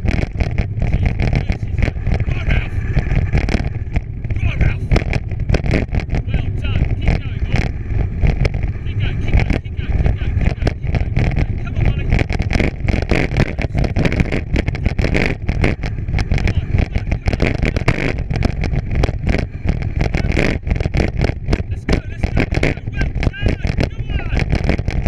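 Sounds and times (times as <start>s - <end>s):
bike rattling and knocking: 0.0s - 25.0s
wind rumbling on microphone: 0.0s - 25.0s.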